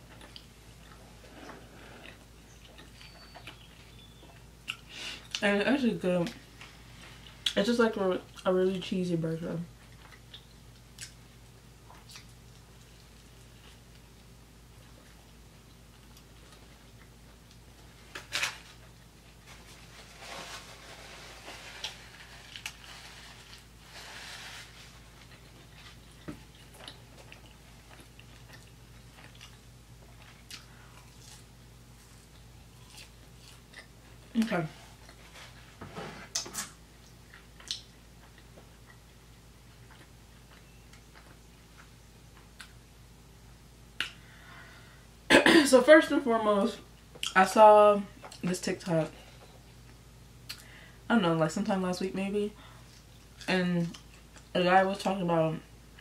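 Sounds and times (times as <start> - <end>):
low steady hum: 0.0 - 56.0
aluminium foil wrapper crinkling: 18.0 - 26.1
paper napkin rustling: 19.4 - 26.0.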